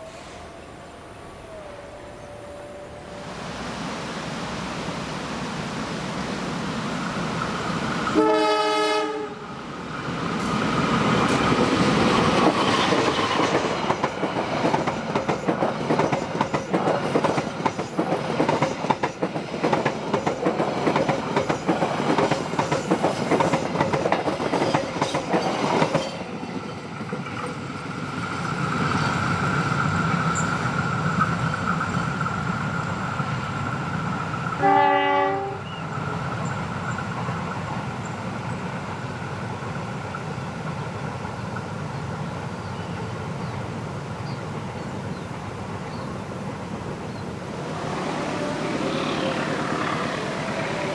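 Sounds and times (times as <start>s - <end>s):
train horn blast: 8.1s - 9.5s, 34.6s - 35.7s, 47.7s - 50.9s
train wheels clickety-clack: 10.3s - 35.4s.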